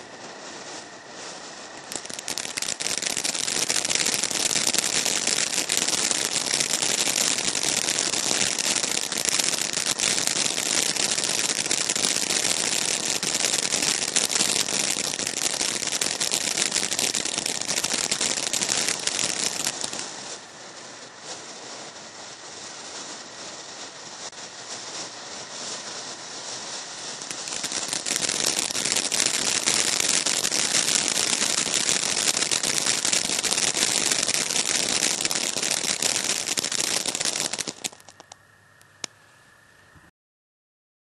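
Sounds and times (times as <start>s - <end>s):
firework fountain crackling hiss: 0.0s - 40.1s.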